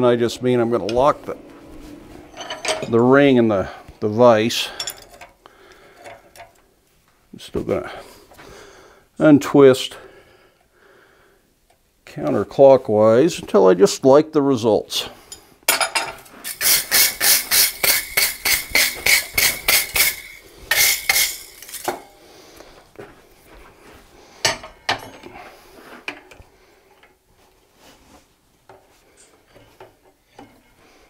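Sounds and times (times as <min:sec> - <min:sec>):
metal-on-metal clinks: 0:02.3 - 0:03.0, 0:15.7 - 0:22.2.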